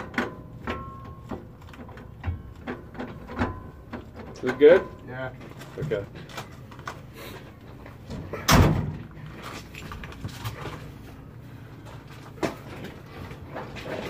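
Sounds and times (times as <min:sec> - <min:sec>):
knocks and scuffs on truck frame: 0:00.0 - 0:14.0
heavy thump: 0:08.1 - 0:09.1.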